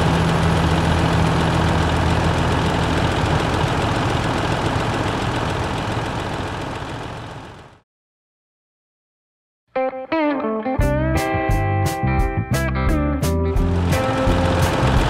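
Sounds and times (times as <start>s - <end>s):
tractor engine running: 0.0s - 7.8s, 13.5s - 15.0s.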